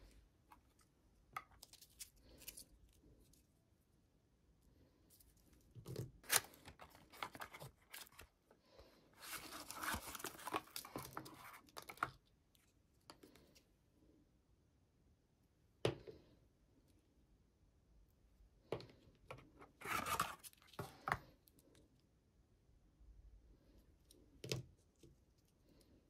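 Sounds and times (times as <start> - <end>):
paperboard tearing and crinkling: 6.2 - 8.2, 9.2 - 11.6.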